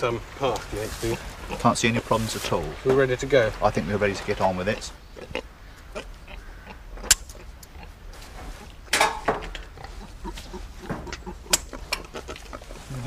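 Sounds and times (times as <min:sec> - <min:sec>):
metal gate clanking: 0:08.9 - 0:09.6.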